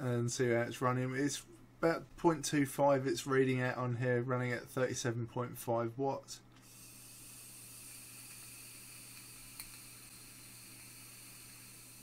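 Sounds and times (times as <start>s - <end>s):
vape atomiser hissing: 6.6s - 12.0s
small click: 9.1s - 9.9s.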